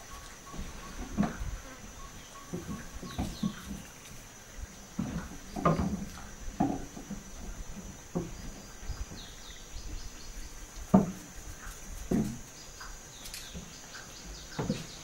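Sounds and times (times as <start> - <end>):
faint bird chirps: 0.0 - 4.1
high insect drone: 0.0 - 15.0
dull knocks: 5.0 - 8.6, 10.9 - 11.2.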